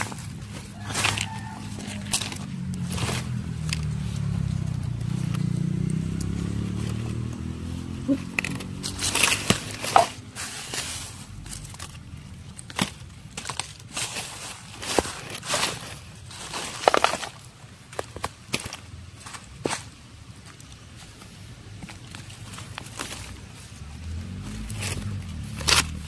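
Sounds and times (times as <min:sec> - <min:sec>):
hands rummaging through dry leaves: 0:00.0 - 0:26.0.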